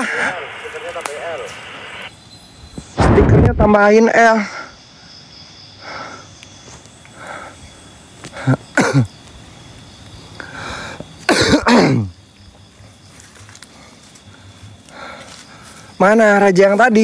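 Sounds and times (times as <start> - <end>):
soft breaths: 5.8 - 8.5, 10.2 - 11.2, 13.4 - 16.0
man coughing and hawking: 8.4 - 9.1, 11.3 - 12.1.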